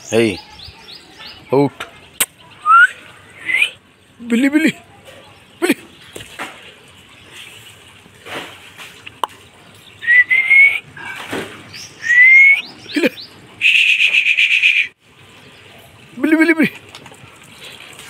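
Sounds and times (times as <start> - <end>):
person whistling: 2.6 - 3.8, 10.0 - 10.8, 12.0 - 12.6, 13.6 - 14.9.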